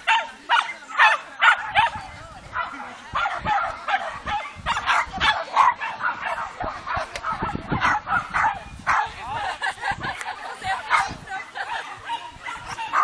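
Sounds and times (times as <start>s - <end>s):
dog barking in excited yips: 2.6s - 9.1s, 10.9s - 13.0s.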